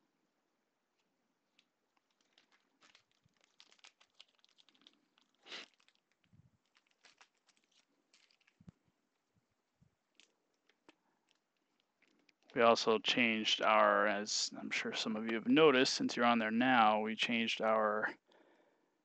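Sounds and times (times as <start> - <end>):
cards and wrappers crinkling: 1.5 - 9.3, 10.1 - 12.8.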